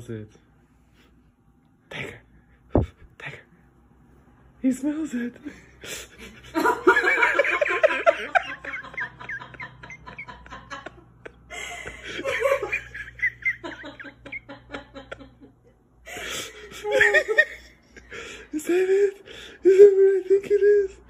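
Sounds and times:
person giggling: 5.4 - 15.5, 16.1 - 21.0.

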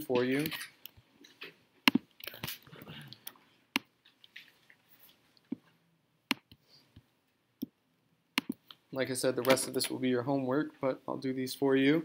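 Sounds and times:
mouse and keyboard clicks: 8.4 - 8.8.

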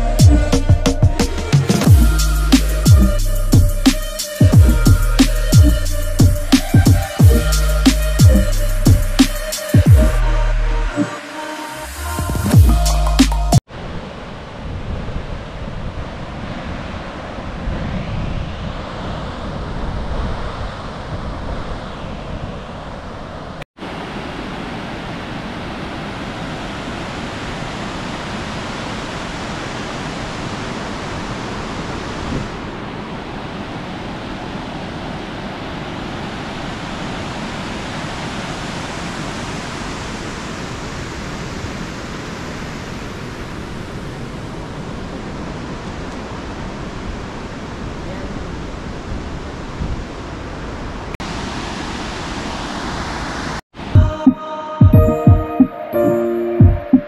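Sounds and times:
waterfall roaring: 22.8 - 53.6.

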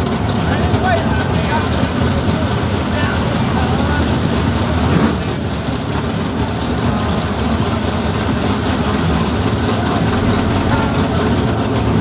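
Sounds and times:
drag race car engines running: 0.0 - 12.0.

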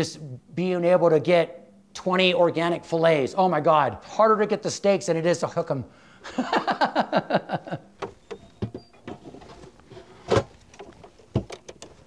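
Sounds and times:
falling squeaks: 8.1 - 10.2.

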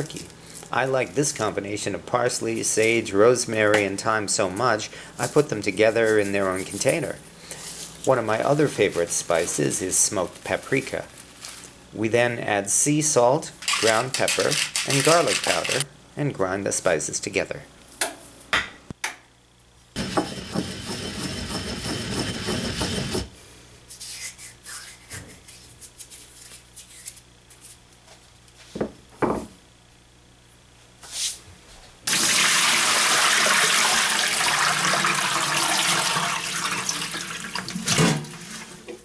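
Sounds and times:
mortar and pestle grinding: 20.0 - 23.3.

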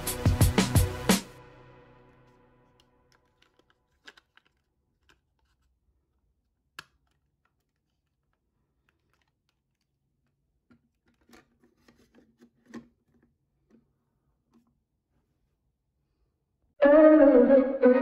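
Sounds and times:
background music: 0.0 - 3.0, 16.8 - 18.0
small clicks of model car parts: 2.8 - 5.8, 6.6 - 13.8.

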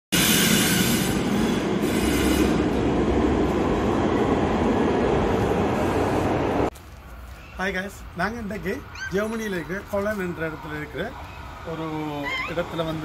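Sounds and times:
wheels squealing on rail: 0.2 - 2.8
tram running noise echoing: 0.2 - 6.7, 8.0 - 13.0.

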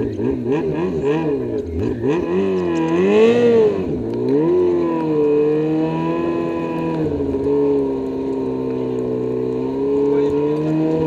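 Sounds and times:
snowmobile engine revving: 0.0 - 11.0.

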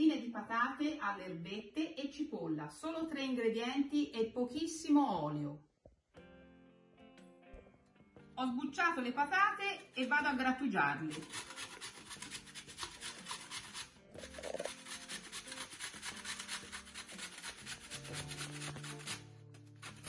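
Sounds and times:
potato grated on metal grater: 10.0 - 20.0.

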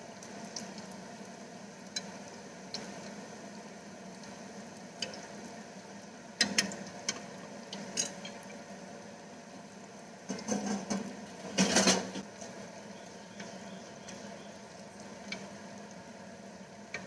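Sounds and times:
oil sizzling: 0.0 - 17.0
metal utensils clattering on pan: 7.9 - 8.5, 10.3 - 12.2.

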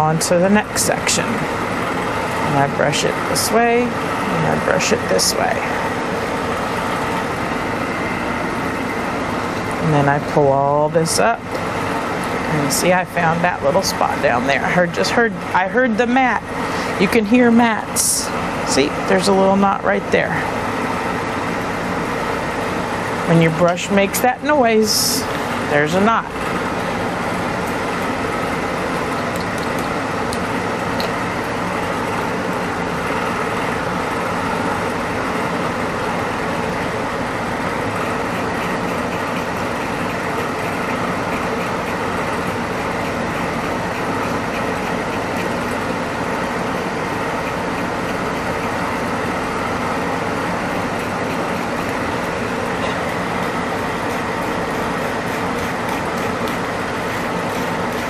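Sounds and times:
people talking: 0.0 - 1.5, 2.5 - 5.8, 9.8 - 11.4, 12.5 - 20.5, 23.3 - 26.3
blower fan humming: 0.0 - 58.0.

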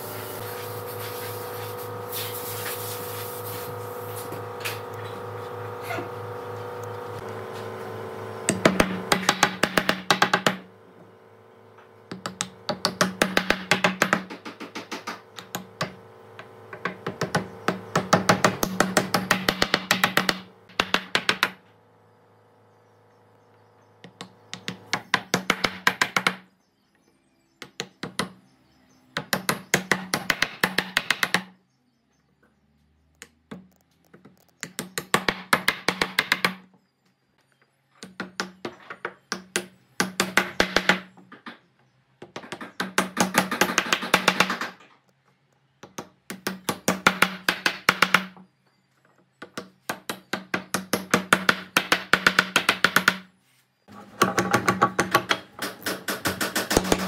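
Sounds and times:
woodworking tool rapid clicking: 42.4 - 44.8, 54.1 - 57.0.

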